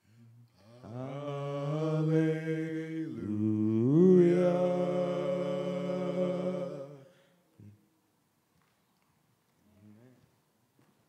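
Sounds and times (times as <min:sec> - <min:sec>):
men singing gospel song: 0:00.6 - 0:07.2.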